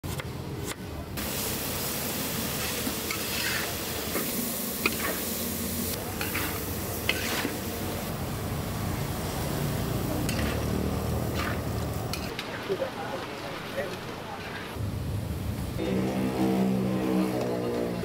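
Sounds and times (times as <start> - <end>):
rice sizzling in a pan: 1.2 - 14.8
metal spatula scraping pan: 2.6 - 3.7, 6.2 - 7.6.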